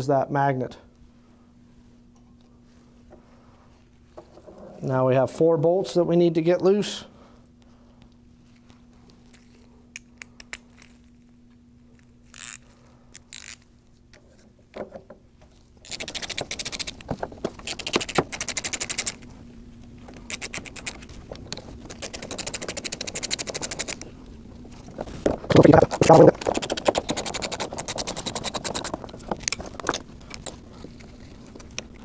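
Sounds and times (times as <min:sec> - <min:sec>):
ratchet wrench clicking: 0:22.0 - 0:24.0
tool clinks: 0:29.4 - 0:30.6.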